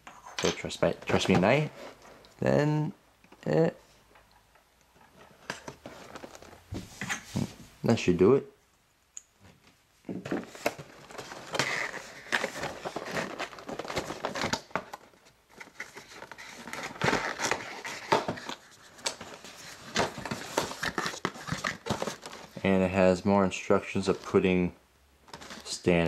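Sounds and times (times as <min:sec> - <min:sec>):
cardboard box rustling and crinkling: 0:05.7 - 0:06.7, 0:10.2 - 0:22.8.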